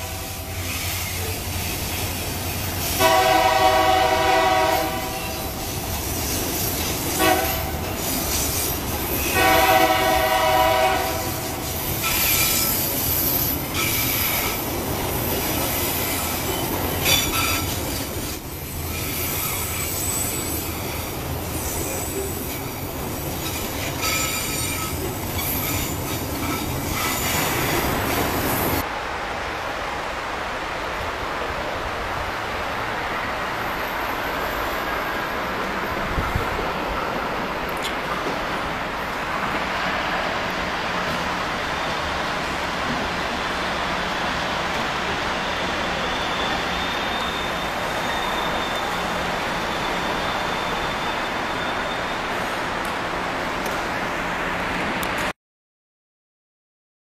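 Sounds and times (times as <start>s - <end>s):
train air horn blasts: 0.0s - 1.1s, 2.8s - 5.8s, 7.1s - 8.1s, 9.1s - 12.5s
train wheel squeal: 0.0s - 3.1s, 4.7s - 10.6s, 11.2s - 28.8s, 33.6s - 35.6s, 43.6s - 52.6s
rumble and clatter of freight cars: 0.0s - 55.3s.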